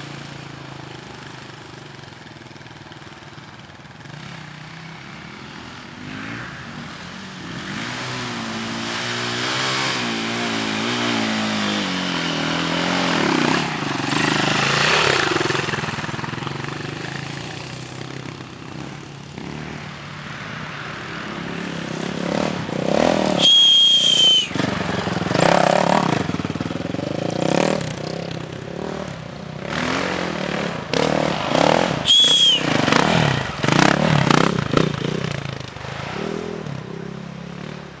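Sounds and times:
dirt bike engines revving: 0:00.0 - 0:38.0
high whistle-like tones: 0:23.4 - 0:24.7, 0:32.0 - 0:32.9.

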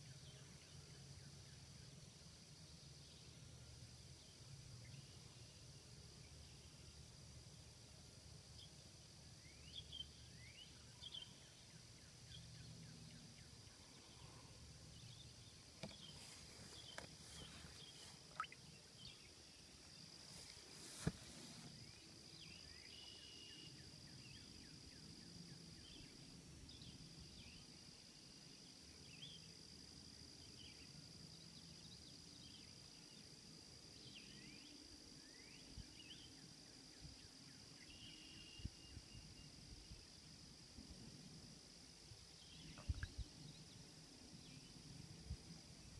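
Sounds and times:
short chirps: 0:18.3 - 0:18.7.

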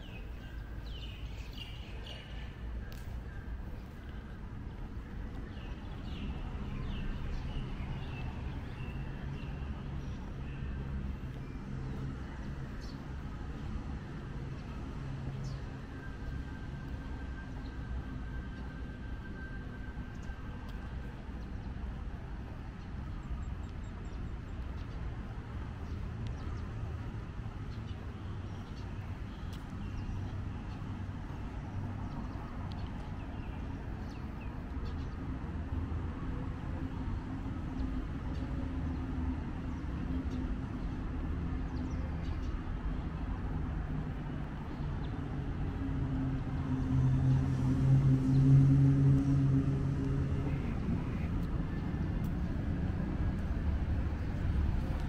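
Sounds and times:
road traffic rumble: 0:00.0 - 0:55.0
vehicle engine hum: 0:24.2 - 0:55.0.

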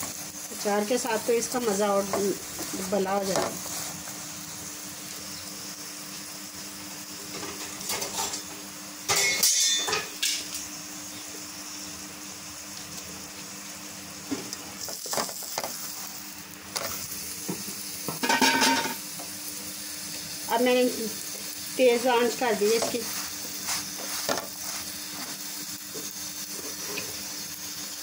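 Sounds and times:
ghee sizzling in a pan: 0:00.0 - 0:28.0.

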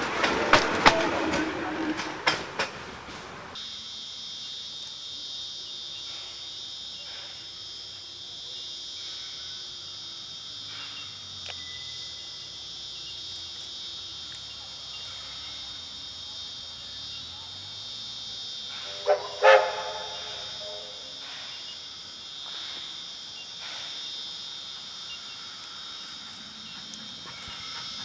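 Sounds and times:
steam locomotive approaching: 0:00.0 - 0:03.6, 0:16.7 - 0:28.0
insects droning: 0:00.0 - 0:28.0
locomotive whistle blasts: 0:18.8 - 0:21.2.

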